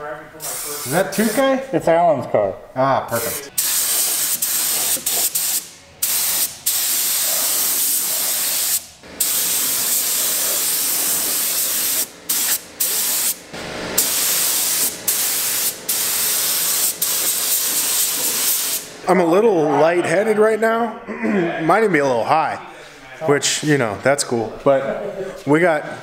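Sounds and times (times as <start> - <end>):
spray gun hissing: 0.4 - 1.5, 3.2 - 13.4, 14.0 - 19.0.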